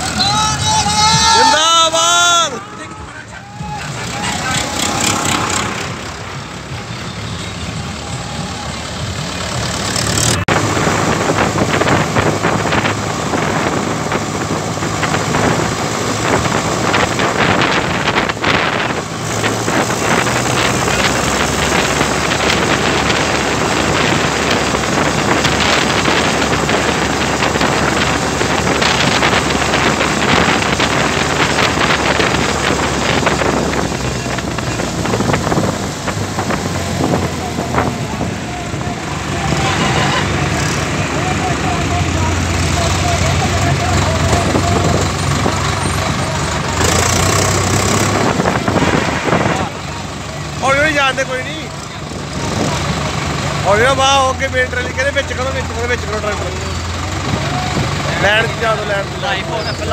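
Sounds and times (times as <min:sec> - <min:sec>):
tractor diesel engine running: 0:00.0 - 0:59.9
wind noise on microphone: 0:10.4 - 0:40.9, 0:44.1 - 0:50.6.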